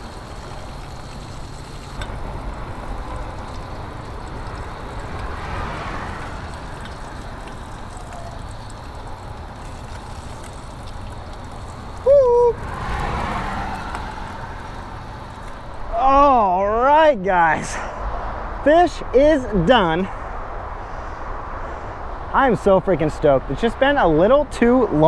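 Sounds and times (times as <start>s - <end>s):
fish frying in oil: 0.0s - 15.9s
wind rumble on microphone: 0.0s - 15.9s.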